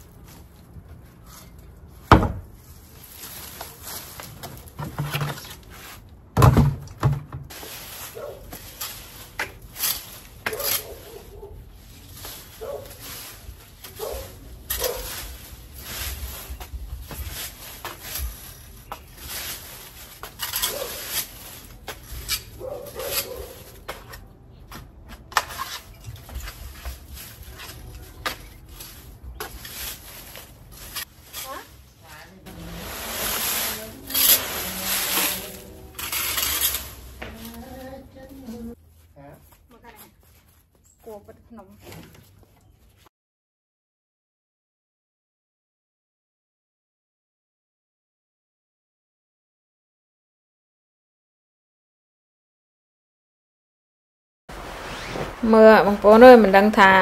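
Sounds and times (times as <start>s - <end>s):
rake scraping through dry leaves: 0.0s - 6.1s, 7.5s - 24.3s, 25.3s - 39.0s, 54.5s - 57.0s
loud thump: 2.1s - 2.5s.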